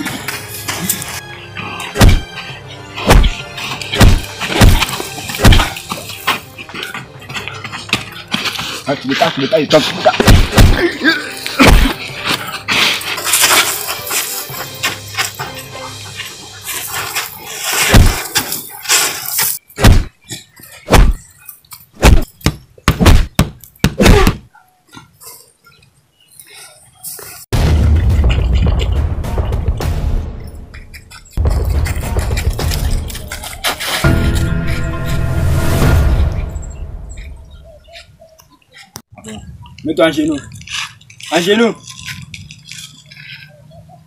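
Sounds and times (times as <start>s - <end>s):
background music: 0.0s - 9.5s, 10.2s - 18.1s, 27.6s - 37.8s
punch and hit sound effects: 2.0s - 2.3s, 3.0s - 5.8s, 10.2s - 10.8s, 17.9s - 18.2s, 19.8s - 20.1s, 20.9s - 21.2s, 22.0s - 22.3s, 22.9s - 24.4s, 27.5s - 30.7s.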